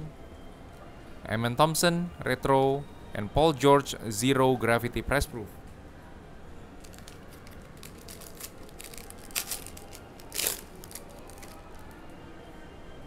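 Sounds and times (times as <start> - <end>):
wrapper crinkling and scraping: 6.8 - 11.9
wrapper ripping: 6.8 - 11.9.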